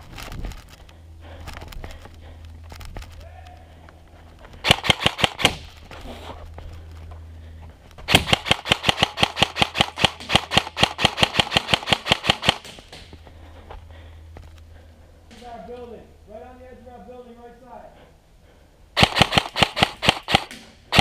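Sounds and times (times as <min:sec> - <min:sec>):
airsoft rifle firing: 0:04.6 - 0:05.8, 0:08.1 - 0:13.1, 0:19.0 - 0:21.0.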